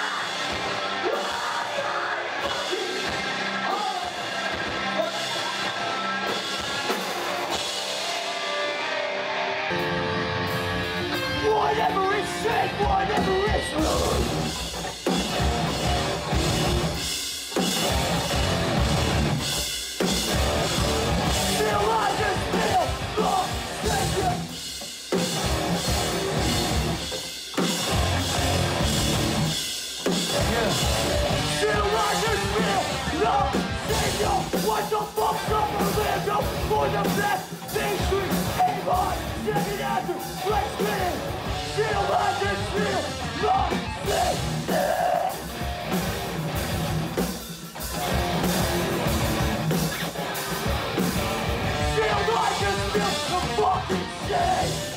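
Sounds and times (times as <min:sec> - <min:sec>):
singer yelling into microphone: 0:00.0 - 0:06.4, 0:11.2 - 0:14.4, 0:21.3 - 0:24.5, 0:30.3 - 0:45.5, 0:51.7 - 0:54.9
live rock band playing: 0:00.0 - 0:54.9.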